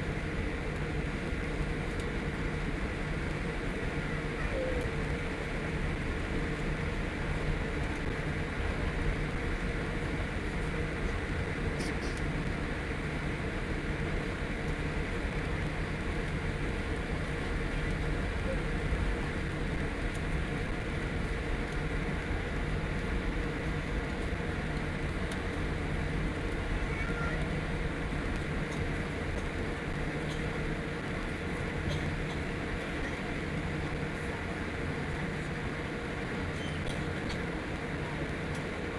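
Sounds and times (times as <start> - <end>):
airplane cabin rumble: 0.0 - 38.9
engines and air system hum: 0.0 - 38.9.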